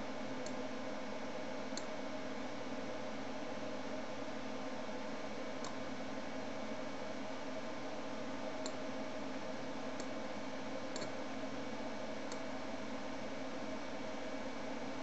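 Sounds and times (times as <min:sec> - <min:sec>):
computer mouse clicking: 0:11.0 - 0:11.2.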